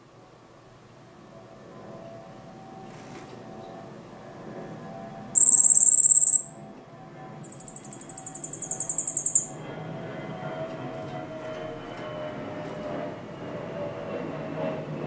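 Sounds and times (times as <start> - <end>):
bird singing high trills: 5.4 - 6.6, 7.4 - 9.6.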